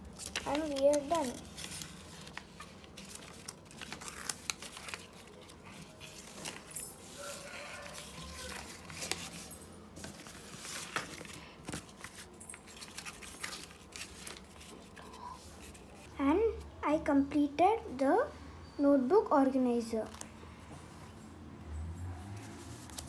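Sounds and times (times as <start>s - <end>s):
paper rustling and crinkling: 0.0s - 16.2s, 20.0s - 20.3s, 22.3s - 23.0s.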